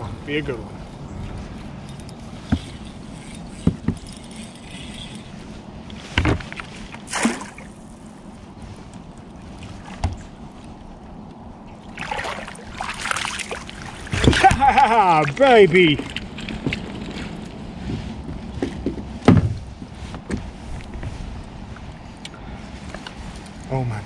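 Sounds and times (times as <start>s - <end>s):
wind and water noise: 0.0s - 24.0s
knocks and thumps in kayak: 14.0s - 14.9s, 18.6s - 20.5s.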